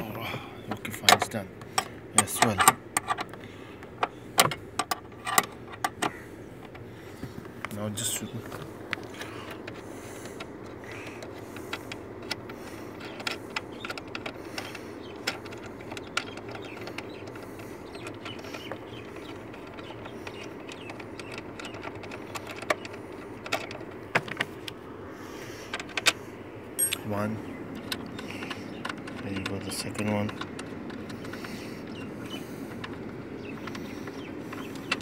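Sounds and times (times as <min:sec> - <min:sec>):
low background hum: 0:00.0 - 0:35.0
metallic clicks and scrapes of bolt: 0:01.0 - 0:03.4, 0:04.0 - 0:06.1.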